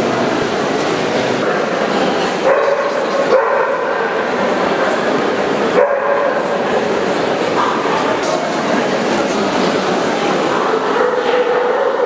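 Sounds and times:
busy indoor hall noise: 0.0 - 12.0
dogs barking: 2.4 - 4.4, 5.7 - 6.6, 10.6 - 12.0.

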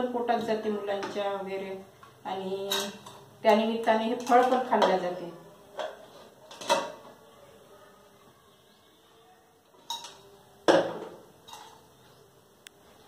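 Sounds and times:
metal jar and lid clanking: 9.8 - 10.2, 10.9 - 11.9.

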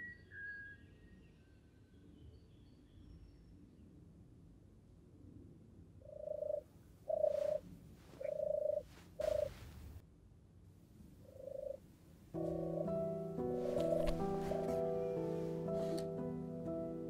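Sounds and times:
turtle dove cooing: 6.1 - 7.6, 8.2 - 9.6, 11.2 - 11.8.

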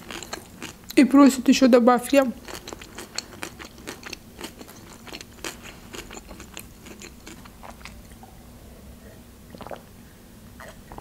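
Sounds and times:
wet chewing mouth clicks: 2.2 - 8.2.

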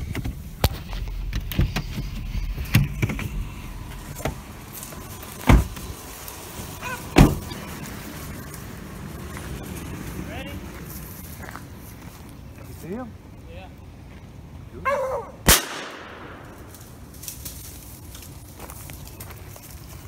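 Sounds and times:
steady low rumble: 0.0 - 14.8
truck door slammed shut: 5.4 - 5.8, 7.1 - 7.5.

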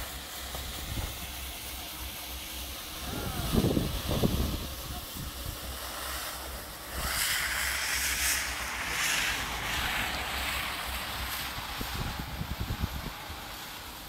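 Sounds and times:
wind buffeting microphone: 3.0 - 5.8, 9.1 - 13.6.

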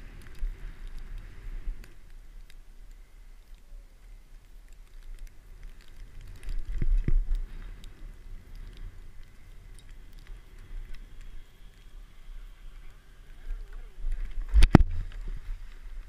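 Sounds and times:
small clicks: 0.0 - 16.0
wind rumble on microphone: 0.0 - 16.0
low wind buffet thumps: 5.0 - 11.5, 13.6 - 16.0.

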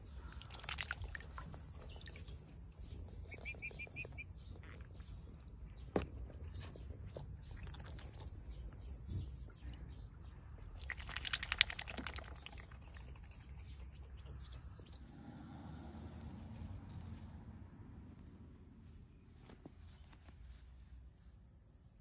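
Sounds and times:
insect chirring: 0.3 - 5.6, 6.3 - 9.7, 10.9 - 15.1.

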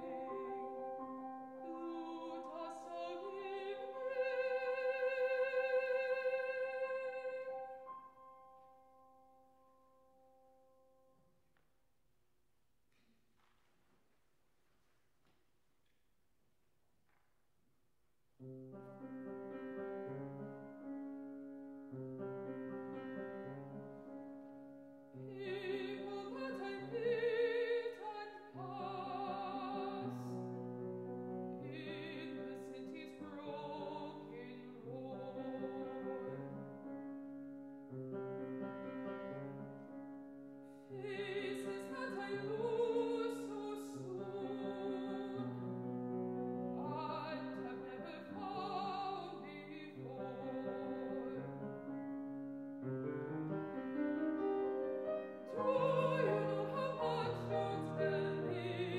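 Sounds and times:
grand piano: 0.0 - 11.6, 18.4 - 58.9
woman singing with vibrato: 1.6 - 7.7, 25.3 - 30.4, 31.6 - 36.4, 40.9 - 45.6, 46.8 - 51.5, 55.5 - 58.9.

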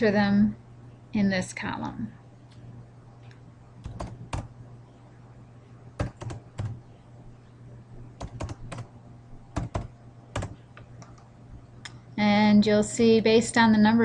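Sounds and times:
faint low hum: 0.0 - 14.0
keyboard typing: 3.8 - 4.5, 6.0 - 6.8, 8.2 - 8.9, 9.5 - 11.3.

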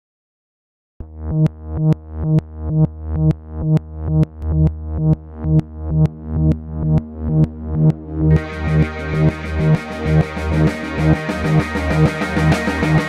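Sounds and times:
electronic dance music: 3.6 - 13.0.

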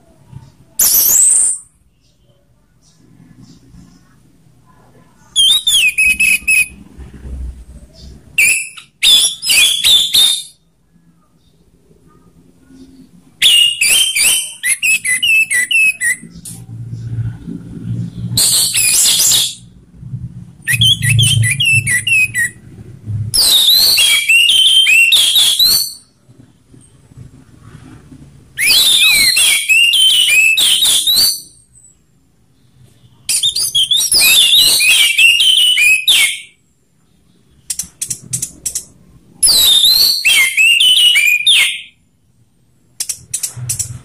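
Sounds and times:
thrush singing whistled phrases: 5.4 - 6.8, 8.4 - 10.6, 13.4 - 16.3, 20.6 - 22.6, 23.4 - 26.1, 28.6 - 31.6, 33.3 - 36.6, 38.8 - 42.0.

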